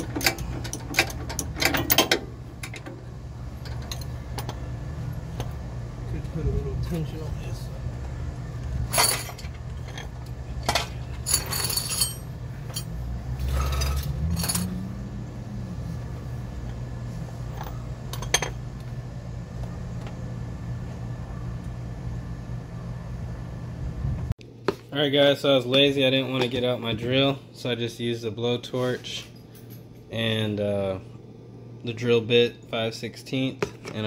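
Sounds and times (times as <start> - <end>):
metal tools clinking: 0.0 - 2.9, 3.6 - 4.6, 8.9 - 14.8
low hum: 0.0 - 24.3.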